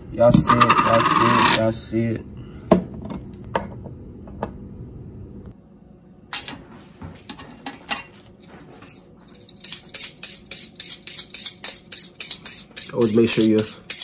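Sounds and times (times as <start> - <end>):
knife scraping on honing steel: 9.5 - 14.0.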